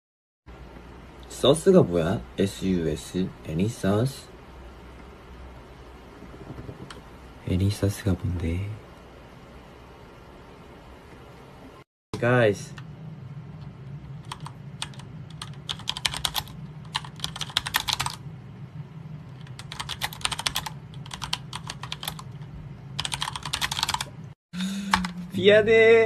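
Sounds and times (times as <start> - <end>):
steady low hum: 0.5 - 26.0
keyboard typing clicks: 14.2 - 18.2, 19.4 - 22.3.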